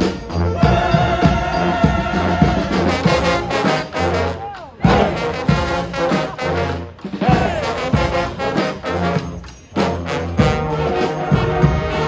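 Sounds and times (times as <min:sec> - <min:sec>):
brass band playing: 0:00.0 - 0:12.0.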